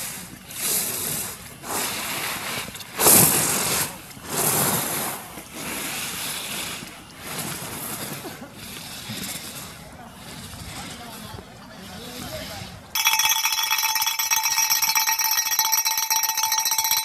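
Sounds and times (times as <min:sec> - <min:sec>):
skis scraping across snow: 0:00.0 - 0:12.7.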